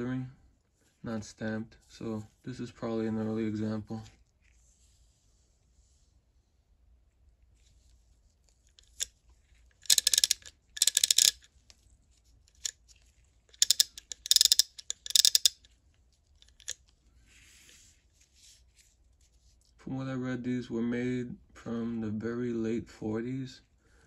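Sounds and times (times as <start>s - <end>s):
ratchet clicking: 9.8s - 11.5s, 13.5s - 15.7s, 16.4s - 16.8s.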